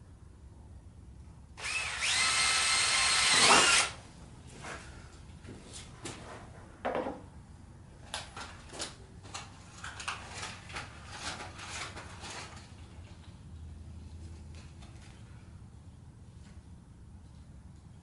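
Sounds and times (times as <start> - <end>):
knock: 6.8 - 7.2
wire clicks and rustles: 8.0 - 13.4.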